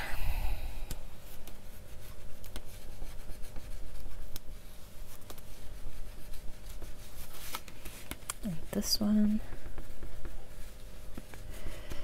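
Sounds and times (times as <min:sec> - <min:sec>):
scratchy rubbing on paper: 0:01.2 - 0:12.0.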